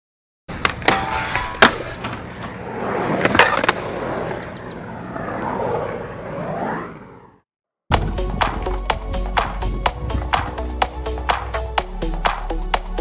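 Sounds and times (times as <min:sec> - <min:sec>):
skateboard wheels rolling: 0:00.5 - 0:07.4.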